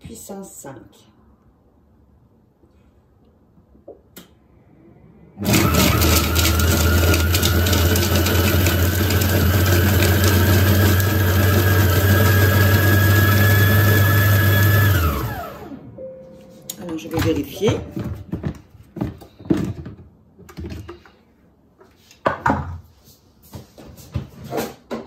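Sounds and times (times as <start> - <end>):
food processor motor running: 5.4 - 15.8.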